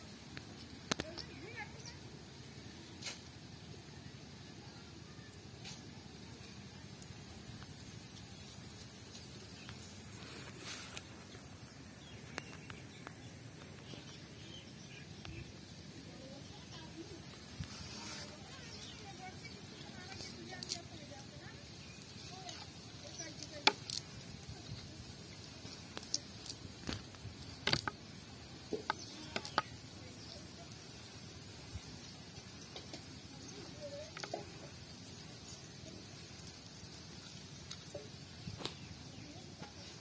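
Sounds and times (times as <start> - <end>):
sharp small clicks: 0.3 - 1.4, 20.0 - 21.4, 22.4 - 24.2, 25.6 - 29.8
short rustle: 8.8 - 11.7, 17.3 - 19.1.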